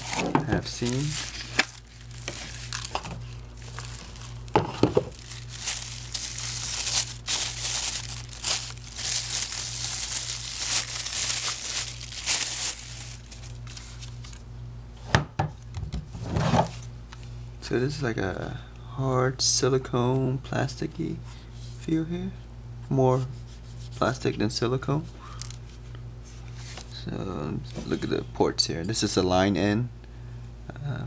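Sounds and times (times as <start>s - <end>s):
plastic bag crinkling: 0.0s - 14.4s
steady low hum: 0.0s - 31.0s.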